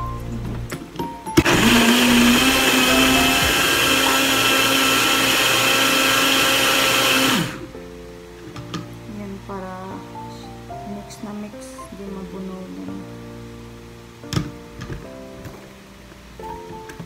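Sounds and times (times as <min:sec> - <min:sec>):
blender motor whining: 0:01.4 - 0:07.7.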